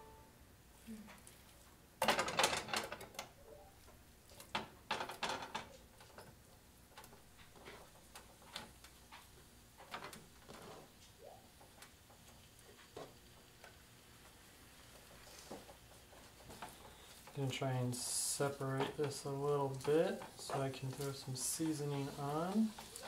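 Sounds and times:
chicken sizzling in butter: 18.1s - 23.0s.

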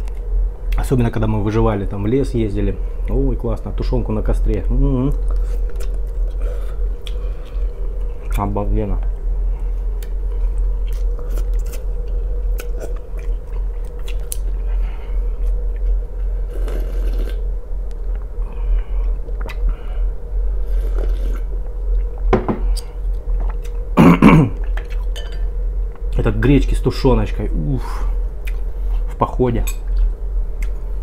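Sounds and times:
steady low hum: 0.0s - 31.0s
chewing and eating: 5.1s - 8.4s, 10.0s - 14.7s, 15.3s - 19.7s, 20.6s - 23.9s, 24.6s - 25.2s, 28.4s - 29.2s, 29.8s - 30.8s
slurping: 16.5s - 17.4s, 20.6s - 21.5s.

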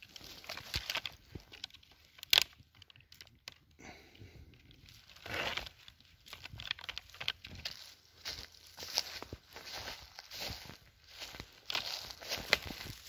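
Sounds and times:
pine needles rustling and crunching: 0.0s - 4.0s, 4.6s - 13.0s
twig snapping: 0.2s - 3.7s.

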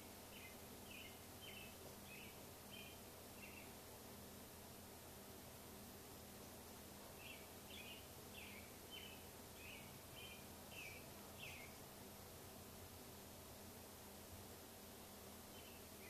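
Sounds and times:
faint room hiss: 0.0s - 16.0s
bird chirping faintly: 0.2s - 3.8s, 7.1s - 11.9s, 15.4s - 16.0s.

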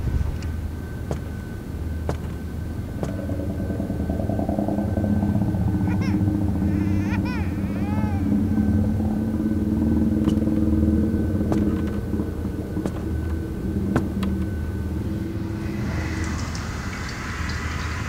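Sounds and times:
low steady rumble: 0.0s - 18.0s
tap water running into basin: 15.7s - 18.0s.

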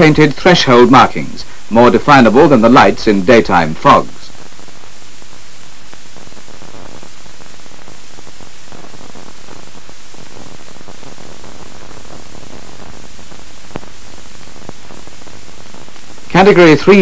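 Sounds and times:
film soundtrack hiss: 0.0s - 17.0s.

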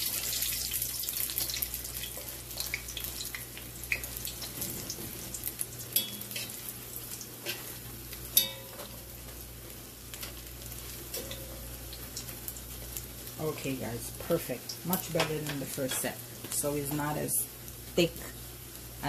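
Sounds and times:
fritters sizzling in hot oil: 0.0s - 19.0s
metal fork clicking against pot: 8.4s - 8.7s.

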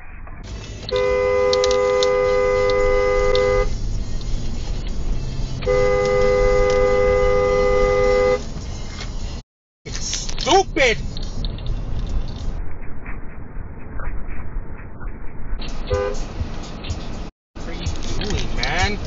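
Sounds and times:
road noise: 0.0s - 19.0s
car horn blasts: 0.8s - 3.8s, 5.6s - 8.5s, 15.7s - 16.3s.

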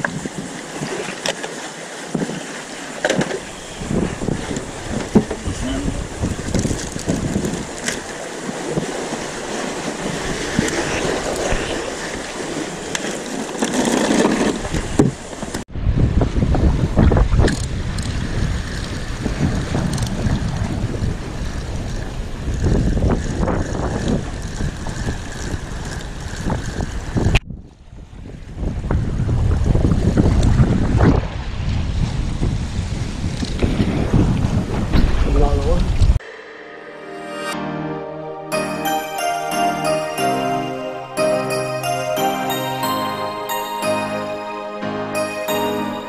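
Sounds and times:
wind buffeting microphone: 3.3s - 36.2s.

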